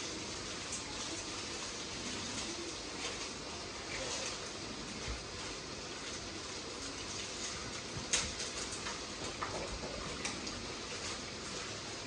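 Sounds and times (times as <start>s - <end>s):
stove hiss: 0.0s - 12.0s.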